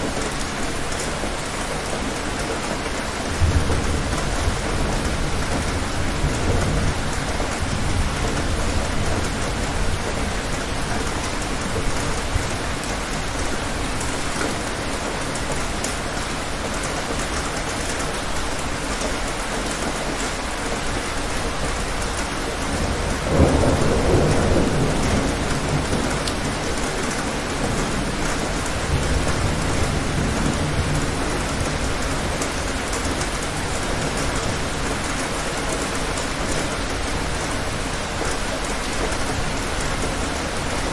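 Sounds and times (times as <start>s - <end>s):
steady rain: 0.0s - 40.9s
loud thunderclap: 22.8s - 26.7s
rolling thunder: 22.8s - 32.4s.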